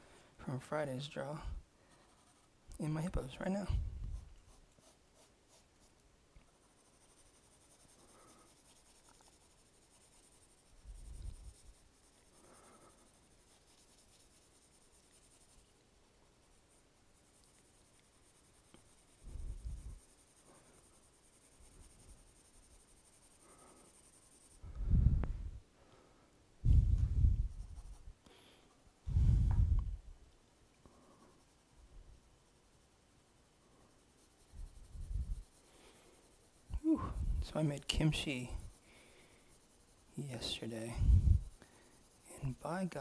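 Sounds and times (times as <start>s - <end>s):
pencil shading on paper: 1.4s - 24.7s, 27.4s - 28.2s, 30.9s - 43.0s
soft low thumps: 26.6s - 27.7s, 29.1s - 30.2s.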